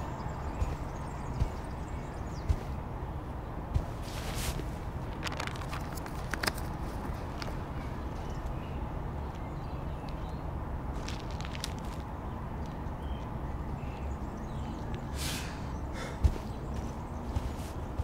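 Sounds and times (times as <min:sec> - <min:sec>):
footsteps on concrete: 0:00.0 - 0:02.8, 0:16.2 - 0:18.0
low outdoor rumble: 0:00.0 - 0:18.0
rustle: 0:03.7 - 0:08.6, 0:10.9 - 0:12.9, 0:14.7 - 0:18.0.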